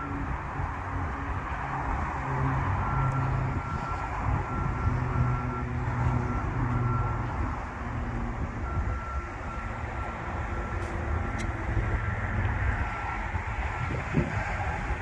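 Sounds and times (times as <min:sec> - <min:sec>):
heavy vehicle engine rumble: 0:00.0 - 0:15.0
backup alarm beeping: 0:02.9 - 0:07.5, 0:08.6 - 0:12.1.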